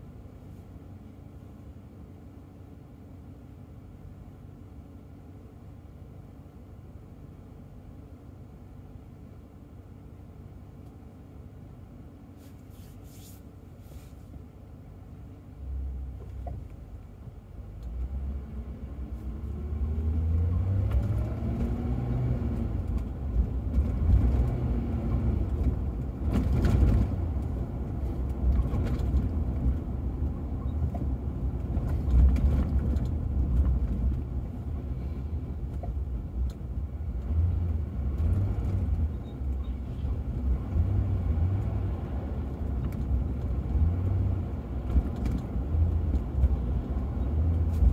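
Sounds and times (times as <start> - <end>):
road noise from tyres: 0.0 - 47.9
car engine accelerating: 17.8 - 47.9.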